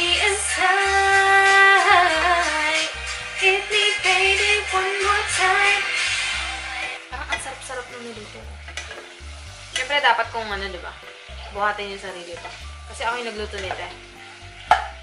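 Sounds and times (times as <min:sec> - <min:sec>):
song with woman singing: 0:00.0 - 0:07.7
food sizzling in a pan: 0:00.0 - 0:15.0.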